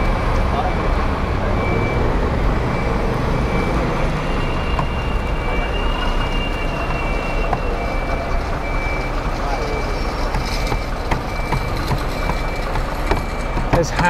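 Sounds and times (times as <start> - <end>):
rumble of buses and trucks: 0.0 - 14.0
faint high beep: 2.7 - 14.0.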